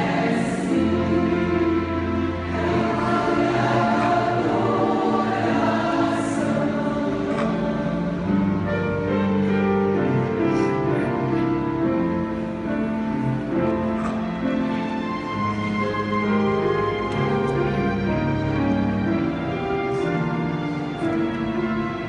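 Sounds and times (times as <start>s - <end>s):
women's choir singing: 0.0s - 8.8s.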